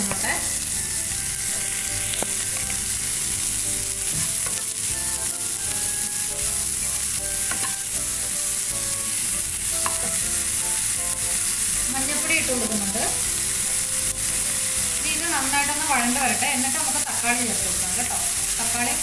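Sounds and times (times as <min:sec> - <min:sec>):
onions sizzling in a pan: 0:00.0 - 0:19.0
spatula tapping a pan: 0:04.0 - 0:04.8, 0:07.3 - 0:07.9, 0:09.8 - 0:10.3.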